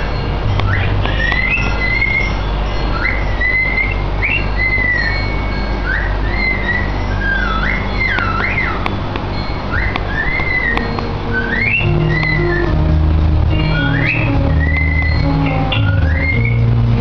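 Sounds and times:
cockatiel whistling: 3.0s - 8.9s, 9.7s - 12.8s, 13.6s - 16.6s.

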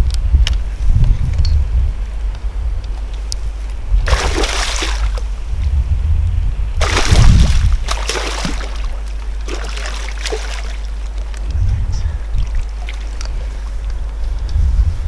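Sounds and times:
fish thrashing and splashing: 4.1s - 5.3s, 6.8s - 11.3s, 12.4s - 13.8s.

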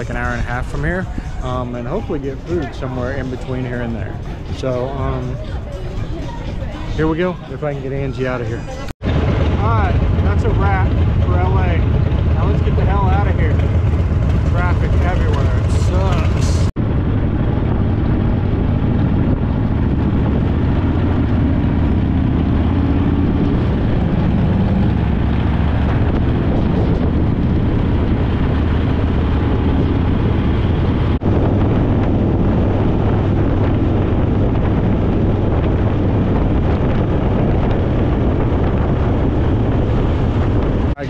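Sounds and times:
wind rushing over microphone: 0.0s - 41.0s
motorcycle engine running: 9.0s - 41.0s.

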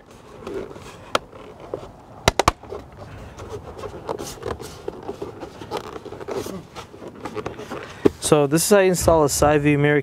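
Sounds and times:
sharp plastic clicks: 2.2s - 2.7s.

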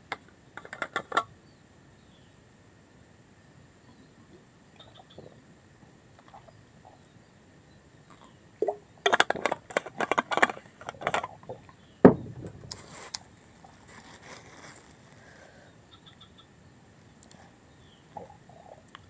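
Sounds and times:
plastic bottle crinkling: 9.1s - 15.4s
faint rustling: 10.0s - 15.7s
thump on wooden table: 12.0s - 12.7s.

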